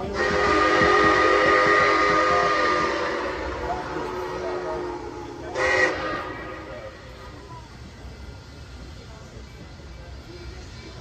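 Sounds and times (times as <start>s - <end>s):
steam locomotive whistle chord: 0.1s - 6.9s.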